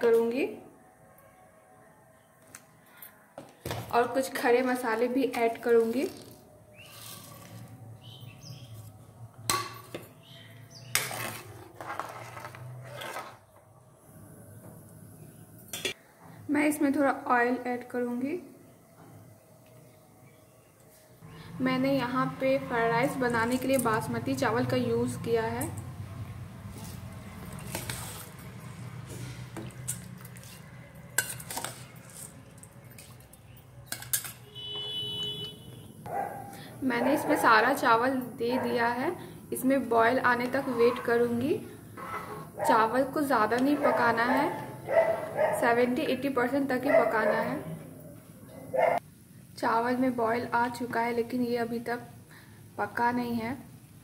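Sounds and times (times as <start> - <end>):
ladle clinking and scraping wok: 10.9 - 13.4, 26.7 - 33.2, 33.9 - 34.5.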